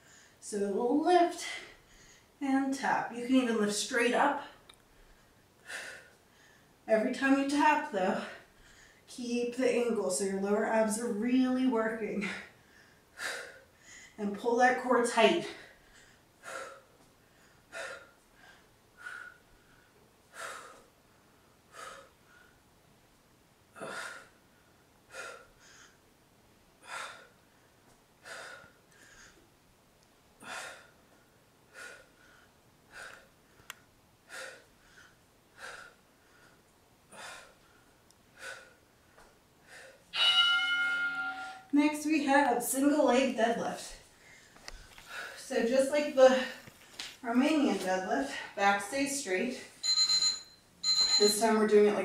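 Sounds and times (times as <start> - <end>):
woman breathing hard: 1.4 - 2.4, 4.9 - 6.8, 8.2 - 9.1, 12.2 - 14.2, 15.4 - 22.6, 23.8 - 26.0, 26.8 - 29.5, 30.4 - 40.1, 44.2 - 45.5.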